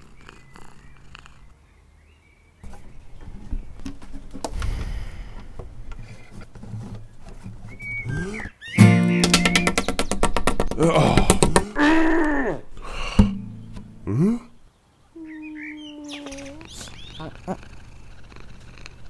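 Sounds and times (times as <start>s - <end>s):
acoustic guitar strum: 8.8s - 10.0s, 13.2s - 14.1s.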